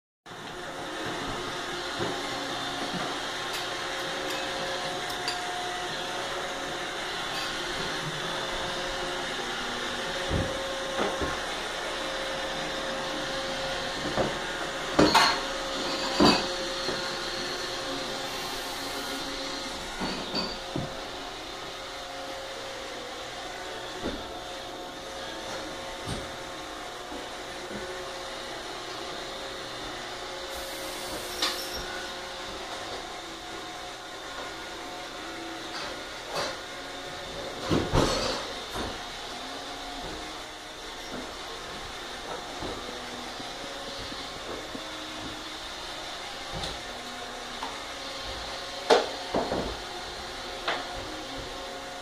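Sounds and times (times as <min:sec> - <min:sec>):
household machine whirring: 0:00.3 - 0:52.0.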